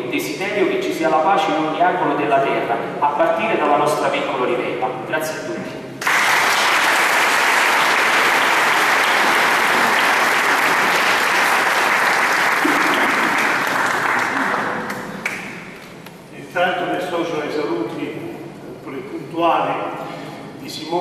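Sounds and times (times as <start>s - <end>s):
crowd applauding: 6.0s - 15.5s.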